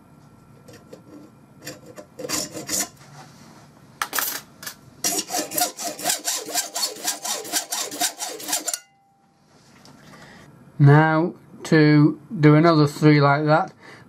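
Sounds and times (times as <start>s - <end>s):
hacksaw cutting steel bar: 1.7s - 3.0s, 5.0s - 8.9s.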